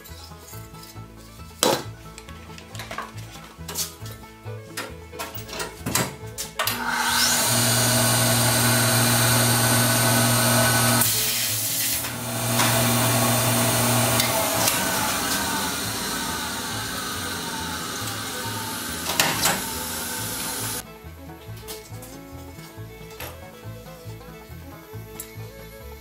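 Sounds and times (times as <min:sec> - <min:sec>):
motor hum: 0:06.7 - 0:20.8
blast cabinet hissing: 0:06.8 - 0:20.8.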